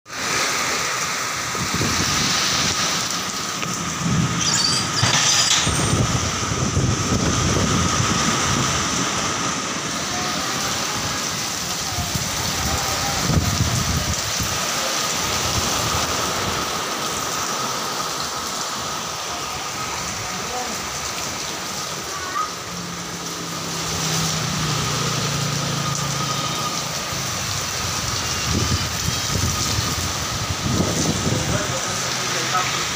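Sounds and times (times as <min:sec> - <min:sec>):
heavy rain pouring: 0:00.1 - 0:32.9
wind gusts hitting microphone: 0:01.5 - 0:04.4, 0:05.0 - 0:09.6, 0:10.4 - 0:17.2, 0:27.4 - 0:31.9.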